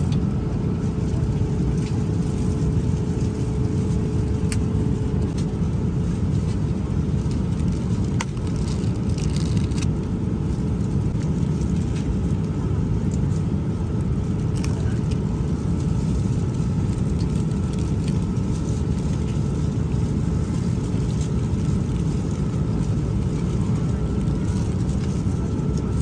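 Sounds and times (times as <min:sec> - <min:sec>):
airliner cabin roar: 0:00.0 - 0:26.0
faint constant hum: 0:00.0 - 0:26.0
plastic film crinkling: 0:07.2 - 0:09.9.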